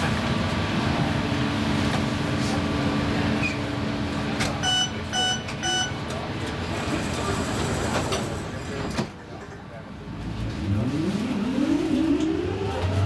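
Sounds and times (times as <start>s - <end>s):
short electronic beeps: 4.6s - 6.0s.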